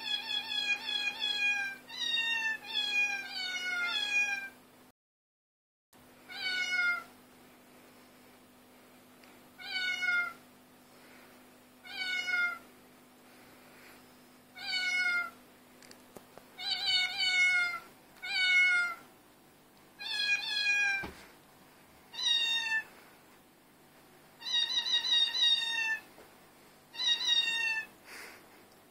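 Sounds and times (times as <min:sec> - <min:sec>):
cat meowing: 0:00.0 - 0:04.6, 0:06.3 - 0:07.1, 0:09.6 - 0:10.4, 0:11.8 - 0:12.6, 0:14.6 - 0:15.4, 0:16.6 - 0:19.0, 0:20.0 - 0:21.1, 0:22.1 - 0:22.9, 0:24.4 - 0:26.1, 0:26.9 - 0:27.9.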